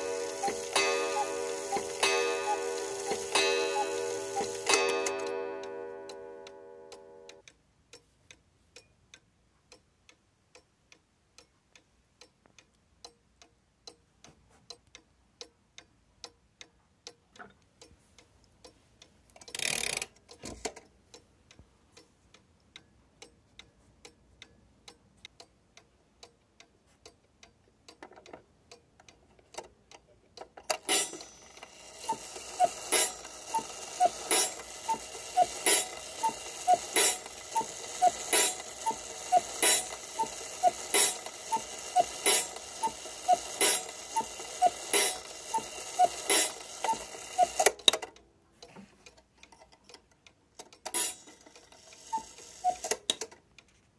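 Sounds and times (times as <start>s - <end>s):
background hiss: 0.0s - 16.8s, 30.7s - 47.8s
clock ticking: 0.0s - 53.7s.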